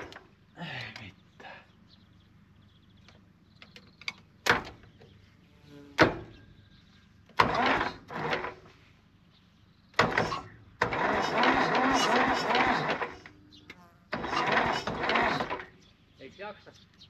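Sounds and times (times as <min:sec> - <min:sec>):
short rushing bursts: 0:10.2 - 0:13.3.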